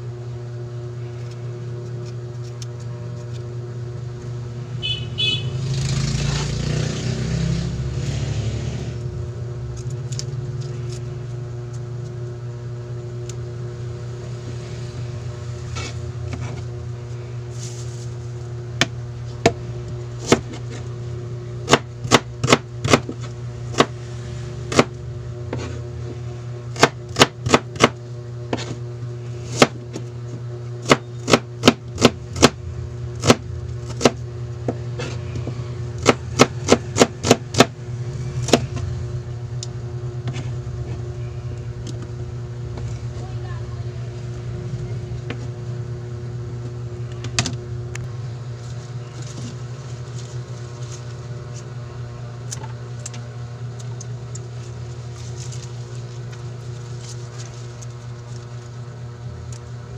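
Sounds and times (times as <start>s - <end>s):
steady low hum: 0.0s - 59.9s
knife chopping on plastic board: 20.2s - 20.8s, 21.6s - 24.0s, 24.7s - 24.9s, 26.8s - 28.8s, 29.5s - 29.9s, 30.8s - 32.6s, 33.2s - 37.8s, 38.4s - 38.9s.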